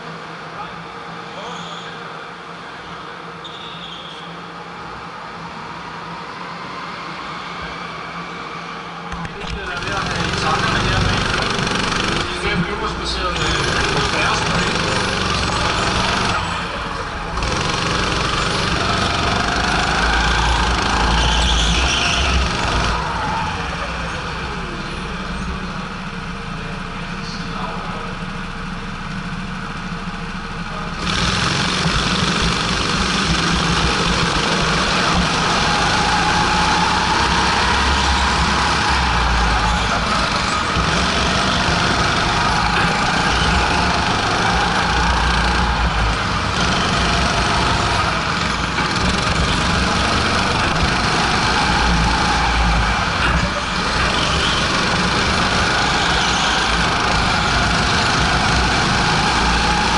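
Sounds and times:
other karts: 0:00.0 - 0:59.9
go-kart engine running: 0:09.1 - 0:59.9.

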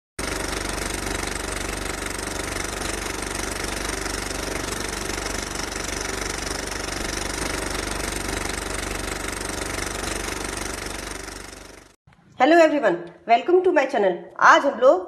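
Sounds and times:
fast-throbbing hum with held tones: 0:00.2 - 0:12.0.

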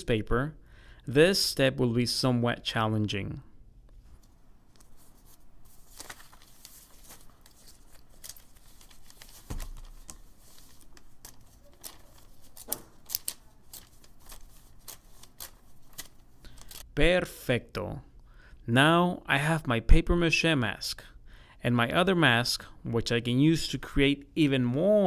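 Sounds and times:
stiff paper crackling and tearing: 0:04.8 - 0:16.8
sharp paper cracks: 0:05.7 - 0:16.8.

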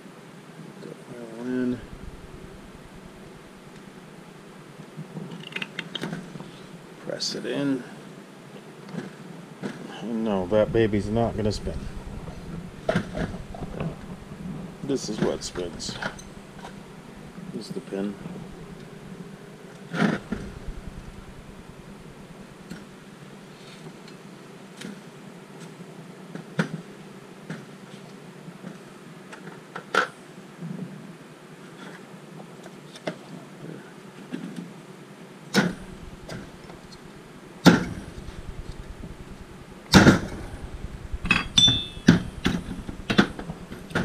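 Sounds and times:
faint steady hum: 0:00.0 - 0:25.5, 0:34.9 - 0:44.0.

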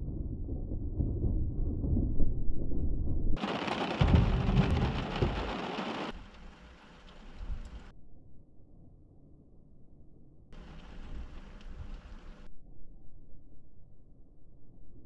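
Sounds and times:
thunder rumbling: 0:00.0 - 0:07.9, 0:10.6 - 0:12.5
rain hissing: 0:03.4 - 0:07.9, 0:10.6 - 0:12.5.

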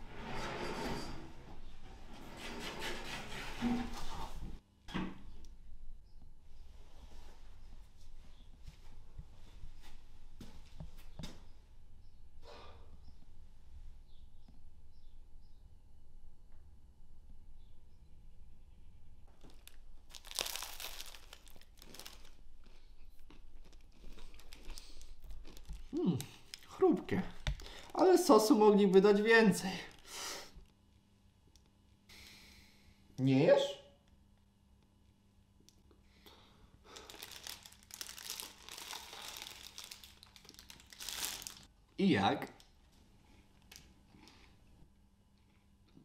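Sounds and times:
paper napkin crinkling: 0:19.4 - 0:22.8, 0:36.9 - 0:41.7
chewing crunchy bread: 0:19.4 - 0:26.8.

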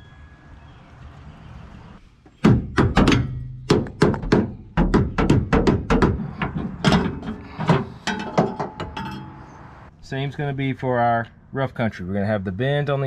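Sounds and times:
hammer striking metal: 0:02.4 - 0:06.2, 0:08.0 - 0:09.6.

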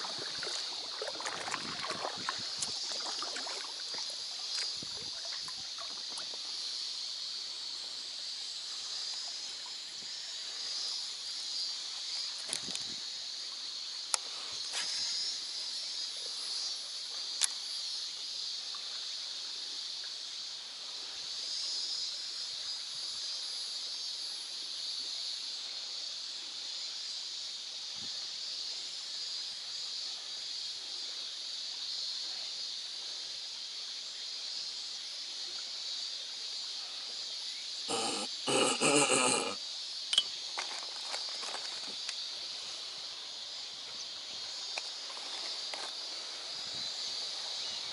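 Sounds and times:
water lapping against raft: 0:00.0 - 0:06.6
steady high hiss: 0:00.0 - 0:47.9.

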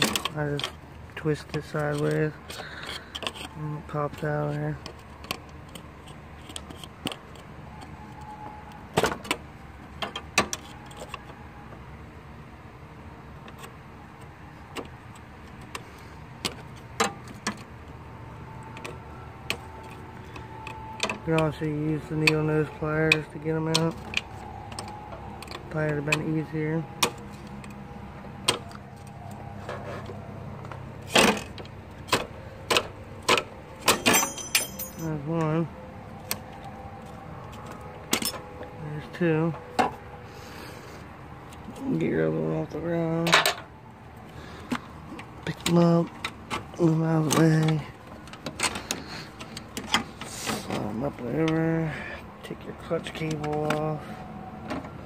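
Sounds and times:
hand tools clicking and knocking: 0:00.0 - 0:08.3, 0:13.4 - 0:35.6, 0:44.6 - 0:51.7, 0:53.0 - 0:53.9
hand tools clicking on metal: 0:00.0 - 0:08.3, 0:18.6 - 0:27.8.

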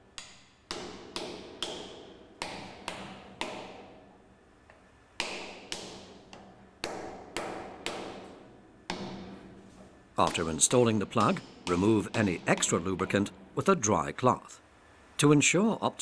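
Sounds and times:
hammer tapping on wood: 0:00.2 - 0:03.9, 0:05.2 - 0:09.3, 0:10.2 - 0:13.2.

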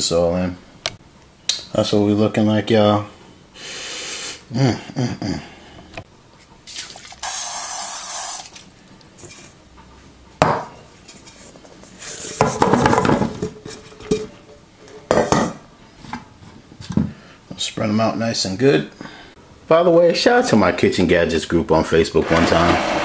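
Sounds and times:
short hiss: 0:07.2 - 0:08.5.

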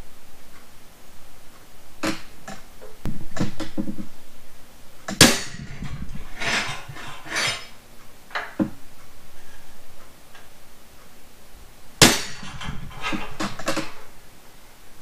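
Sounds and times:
hammer striking metal punch: 0:05.2 - 0:07.2, 0:12.0 - 0:14.0
tools handled and scraped: 0:05.2 - 0:08.6, 0:12.0 - 0:14.2.

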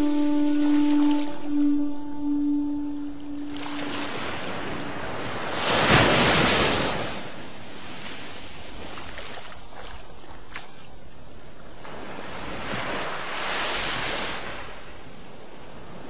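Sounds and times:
sea waves washing: 0:00.0 - 0:16.0.

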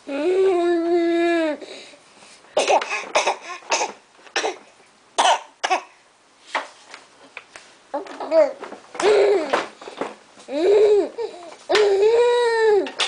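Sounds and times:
baby humming: 0:00.1 - 0:01.7, 0:10.5 - 0:12.9.

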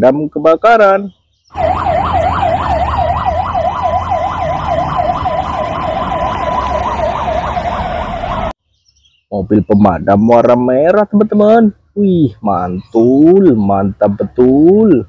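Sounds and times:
fire engine siren yelping: 0:01.5 - 0:08.6.

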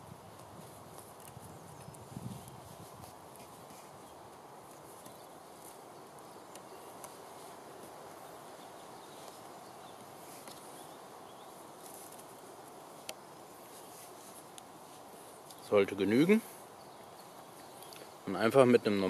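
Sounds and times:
background hiss: 0:00.0 - 0:19.0
cord being wound around branch: 0:00.1 - 0:16.2.

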